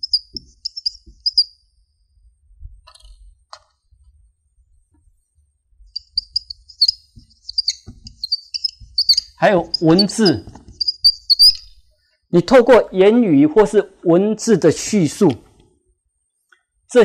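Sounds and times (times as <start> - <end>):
whiteboard marker squeaking: 0.0 - 1.6, 6.0 - 11.9
faint taps: 7.1 - 9.0.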